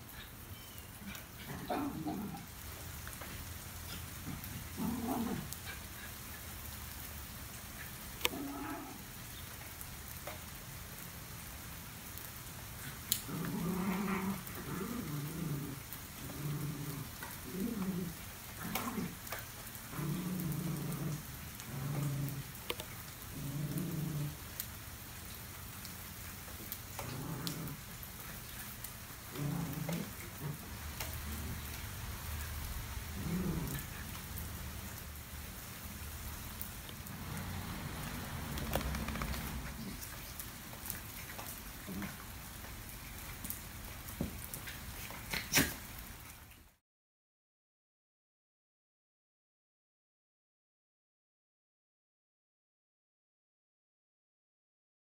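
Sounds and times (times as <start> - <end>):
rain pattering: 0.0 - 46.8
dogs play-growling: 1.0 - 6.2, 7.8 - 9.0, 12.8 - 24.5, 26.5 - 35.0, 36.5 - 46.0.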